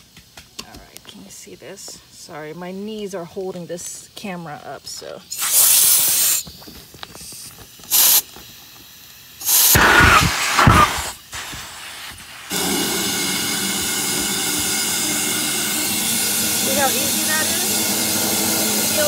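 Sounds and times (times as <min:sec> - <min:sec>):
compressed air hissing: 0:04.6 - 0:19.0.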